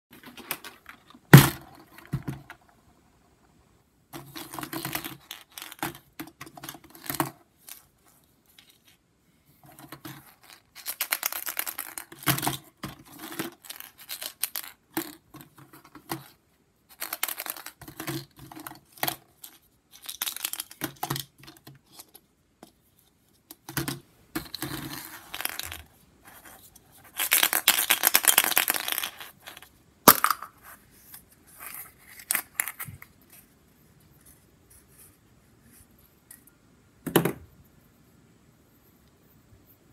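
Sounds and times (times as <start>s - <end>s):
plastic eggs rattling: 9.8s - 21.6s, 23.8s - 30.6s.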